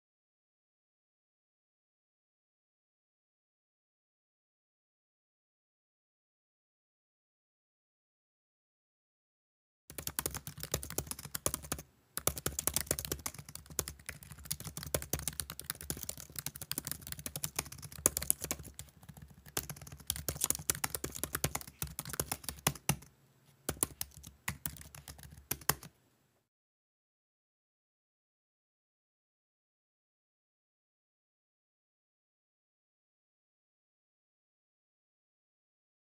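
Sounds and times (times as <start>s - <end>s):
computer keyboard typing: 9.9s - 23.1s, 23.7s - 25.9s.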